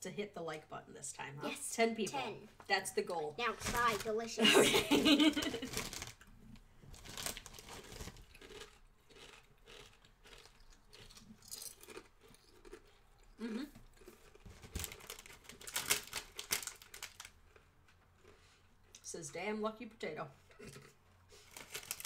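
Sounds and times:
plastic snack bag crinkling: 0:03.5 - 0:04.4, 0:05.2 - 0:06.3, 0:06.9 - 0:12.9, 0:14.0 - 0:18.3, 0:21.3 - 0:22.0
people chewing crunchy chips: 0:05.6 - 0:06.3, 0:07.0 - 0:19.0, 0:20.6 - 0:22.0.

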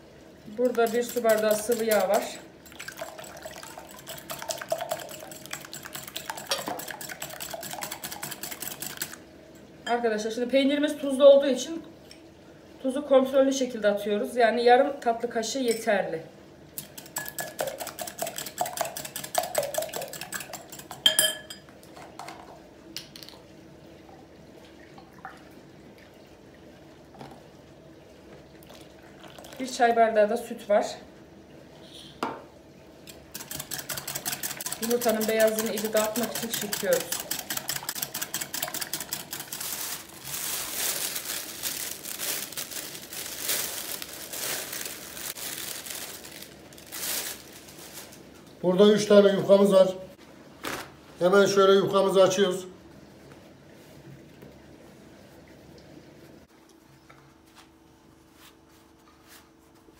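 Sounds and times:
whisk clicking against glass bowl: 0:00.8 - 0:02.2, 0:02.9 - 0:09.2, 0:16.8 - 0:21.5, 0:33.1 - 0:39.6
whisk clinking on bowl: 0:00.8 - 0:09.1, 0:17.0 - 0:21.7, 0:33.4 - 0:39.6
plastic bag crinkling: 0:38.6 - 0:48.4.

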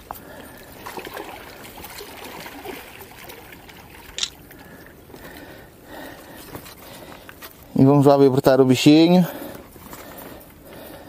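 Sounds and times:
water lapping on stony shore: 0:00.0 - 0:06.4.

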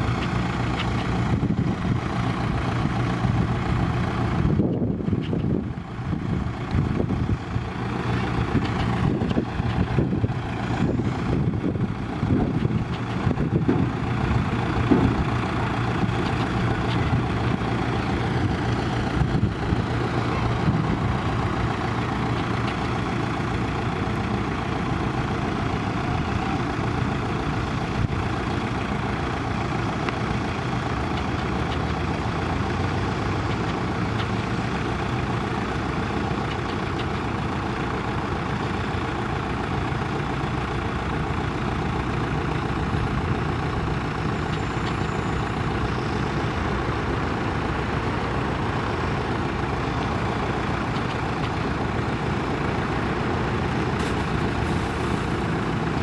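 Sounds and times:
diesel truck engine drone: 0:00.0 - 0:56.0
sweeper machinery noise: 0:13.9 - 0:56.0.

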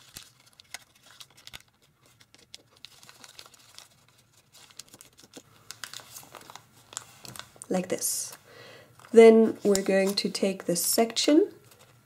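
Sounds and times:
paper being folded: 0:00.0 - 0:07.7, 0:09.0 - 0:10.4.

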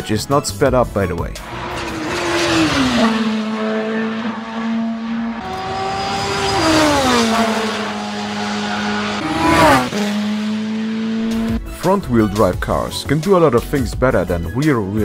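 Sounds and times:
race car passing by: 0:01.4 - 0:11.8.

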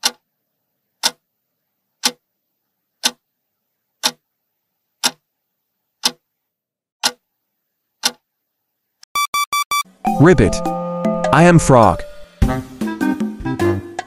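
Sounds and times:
clock ticking: 0:00.0 - 0:00.2, 0:01.0 - 0:01.2, 0:02.0 - 0:02.2, 0:03.0 - 0:03.2, 0:04.0 - 0:04.2, 0:06.0 - 0:06.2.

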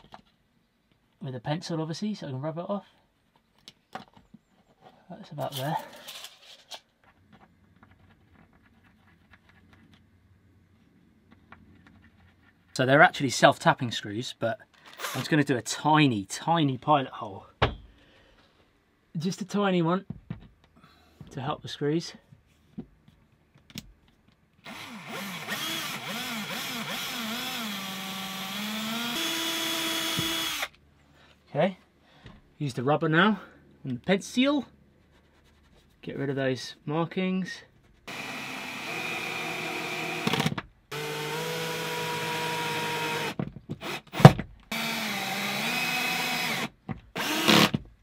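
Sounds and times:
cordless drill drilling: 0:14.9 - 0:15.2, 0:24.6 - 0:30.8, 0:38.1 - 0:47.8.

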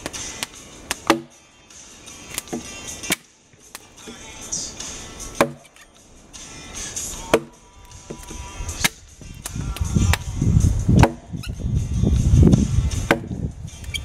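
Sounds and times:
axe chopping log: 0:00.0 - 0:01.4, 0:02.3 - 0:04.2, 0:05.2 - 0:05.8, 0:07.1 - 0:10.3, 0:10.9 - 0:11.4, 0:12.9 - 0:13.4
soft background music: 0:00.0 - 0:14.0.

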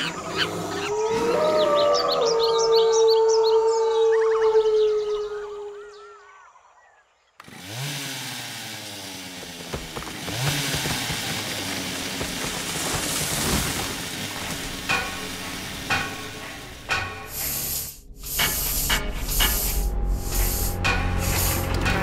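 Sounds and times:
chainsaw revving and running: 0:07.4 - 0:14.9.

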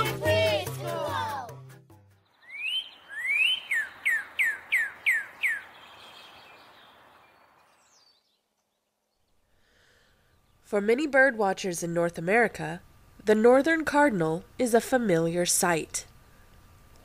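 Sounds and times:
bird singing whistles: 0:02.4 - 0:08.4.

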